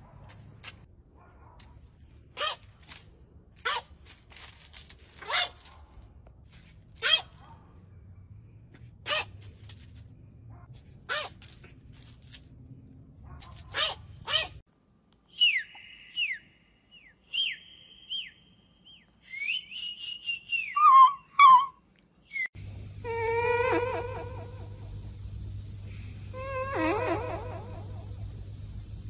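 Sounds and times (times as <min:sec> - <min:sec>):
dog yelping: 0:05.2 - 0:05.7, 0:07.0 - 0:07.5, 0:09.1 - 0:09.4, 0:10.6 - 0:11.6, 0:13.3 - 0:14.6, 0:20.6 - 0:22.5, 0:23.1 - 0:24.7, 0:26.4 - 0:28.0
puppy yapping: 0:05.2 - 0:05.7, 0:07.0 - 0:07.6, 0:09.1 - 0:09.4, 0:10.6 - 0:11.6, 0:13.3 - 0:14.6, 0:20.6 - 0:22.5
dog whining: 0:20.6 - 0:24.7, 0:26.3 - 0:28.0.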